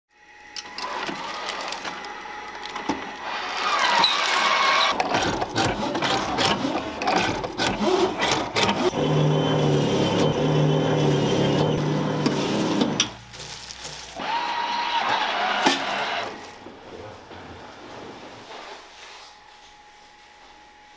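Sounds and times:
pitched motor hum: 0:00.1 - 0:17.4
machine whirring and clicking: 0:00.3 - 0:13.3, 0:14.0 - 0:16.7.

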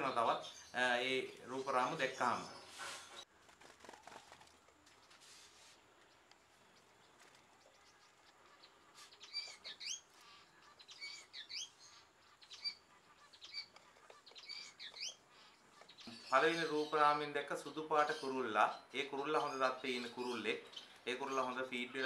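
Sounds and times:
finches chirping: 0:05.9 - 0:22.0.

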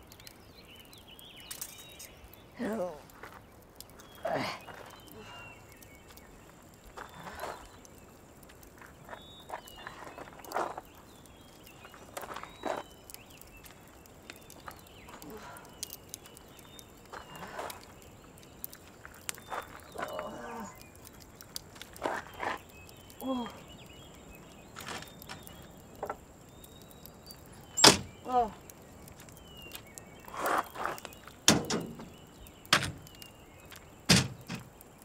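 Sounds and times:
person grunting: 0:04.2 - 0:04.6
knocks and clunks: 0:31.5 - 0:33.1, 0:34.1 - 0:34.7.

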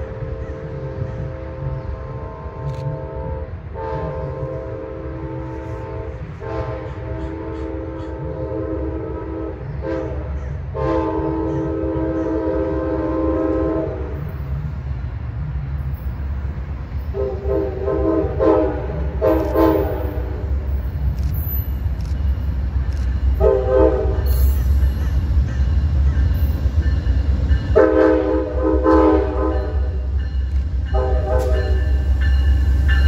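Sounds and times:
locomotive air horn blasts: 0:00.0 - 0:14.3, 0:17.1 - 0:20.6, 0:23.4 - 0:24.6, 0:27.7 - 0:30.2, 0:30.9 - 0:32.0
rumble of approaching train: 0:00.0 - 0:33.0.

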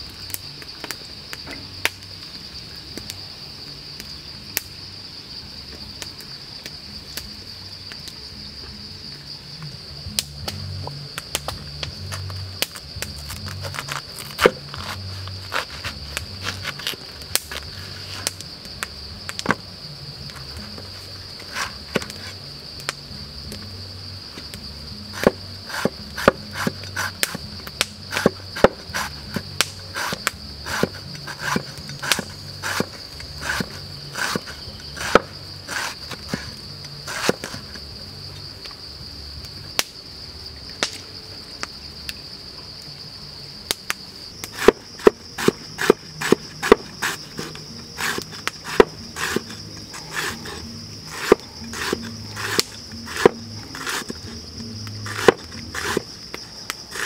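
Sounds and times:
crickets chirring: 0:00.0 - 0:57.0
cleaver chopping on wooden board: 0:25.2 - 0:36.5, 0:44.6 - 0:54.4, 0:55.0 - 0:56.0.

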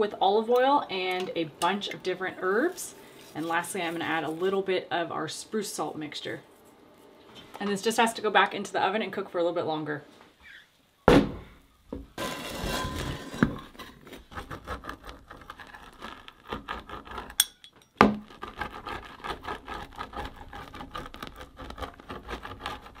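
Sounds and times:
pizza wheel crunching through crust: 0:12.2 - 0:17.4, 0:18.0 - 0:23.0.

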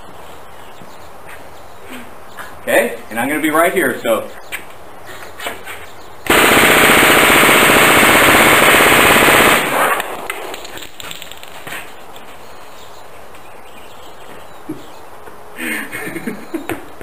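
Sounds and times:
submachine gun full-auto burst: 0:06.3 - 0:10.1.

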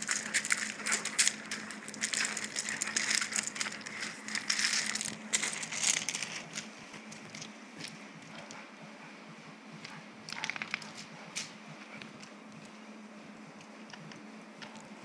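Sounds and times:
gravel crunching under paws: 0:00.0 - 0:08.7
faint steady hum: 0:00.0 - 0:15.0.

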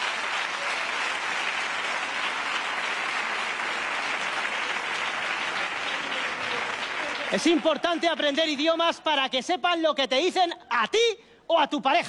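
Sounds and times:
audience applauding: 0:00.0 - 0:08.9.

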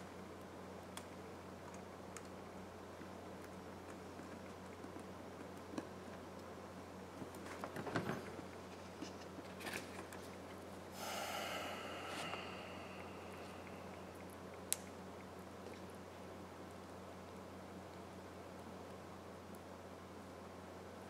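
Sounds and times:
low electrical hum: 0:00.0 - 0:21.0
long hiss: 0:10.9 - 0:14.3.

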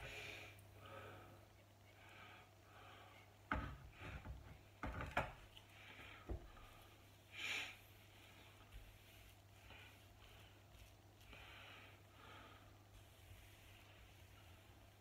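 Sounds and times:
low steady hum: 0:00.0 - 0:15.0
light knocks and clicks: 0:03.5 - 0:05.6
sponge applicator swishing on wood: 0:07.8 - 0:11.3, 0:12.8 - 0:15.0.

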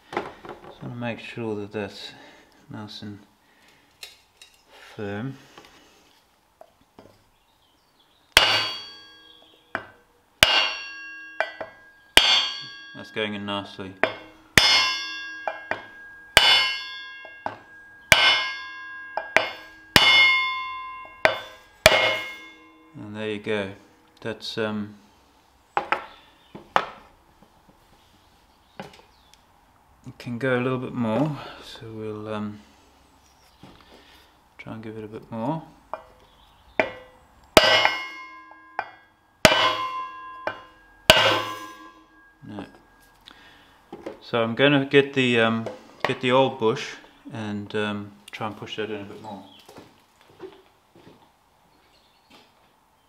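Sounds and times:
mallet striking wood block: 0:08.4 - 0:09.1, 0:09.8 - 0:13.0, 0:14.0 - 0:22.5, 0:36.8 - 0:42.2
metal ringing: 0:08.4 - 0:27.0, 0:36.8 - 0:43.8.

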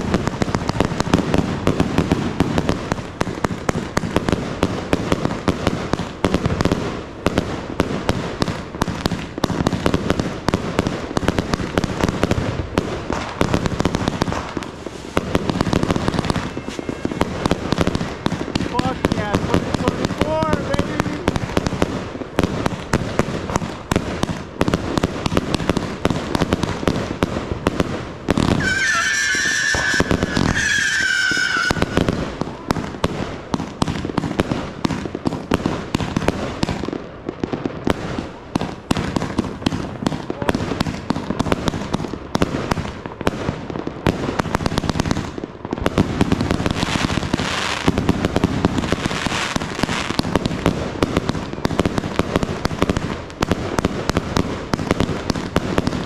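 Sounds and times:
fireworks popping and crackling: 0:00.0 - 0:56.0
high firework whistle: 0:15.9 - 0:19.3, 0:28.4 - 0:32.8.

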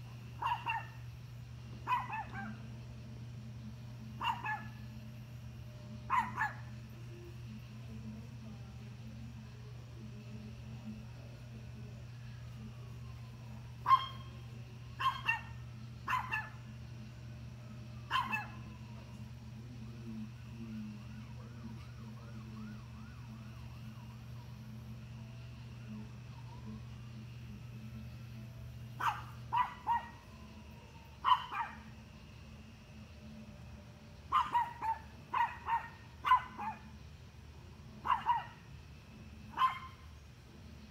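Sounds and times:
dog barking: 0:00.4 - 0:01.0, 0:01.8 - 0:02.7, 0:04.2 - 0:04.8, 0:06.1 - 0:06.7, 0:13.8 - 0:14.3, 0:15.0 - 0:16.6, 0:18.1 - 0:18.6, 0:29.0 - 0:30.2, 0:31.2 - 0:31.9, 0:34.3 - 0:36.9, 0:38.0 - 0:38.6, 0:39.5 - 0:40.0.

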